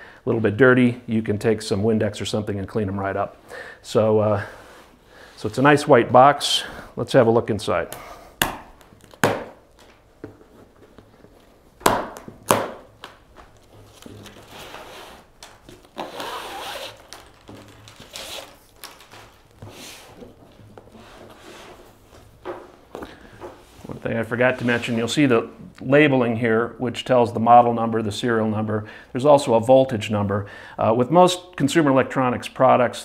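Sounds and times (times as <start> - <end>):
box rustling and scraping: 13.7 - 22.0.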